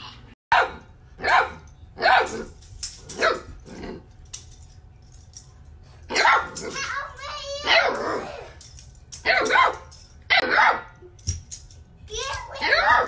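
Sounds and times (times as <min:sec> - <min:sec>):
puppy barking: 0:00.5 - 0:02.5, 0:03.2 - 0:03.5, 0:06.1 - 0:06.8, 0:07.6 - 0:08.3, 0:09.2 - 0:11.0, 0:12.6 - 0:13.0.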